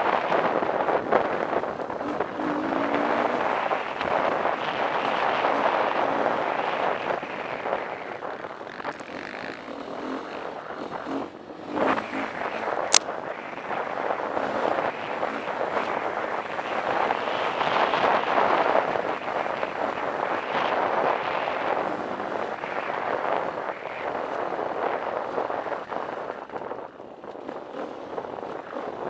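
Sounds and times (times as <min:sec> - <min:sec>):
dirt bike engine revving: 0:00.0 - 0:13.0
wind on microphone: 0:00.0 - 0:29.0.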